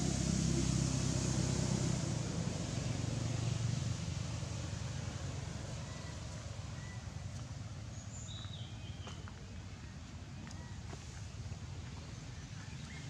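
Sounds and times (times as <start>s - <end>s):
vehicle engine running: 0.0s - 9.2s.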